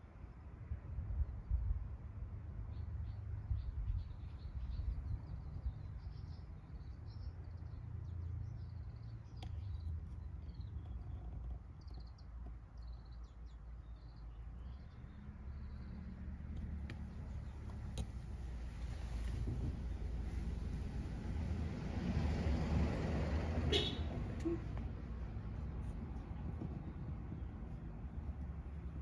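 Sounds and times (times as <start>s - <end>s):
small birds chirping: 2.6s - 20.9s.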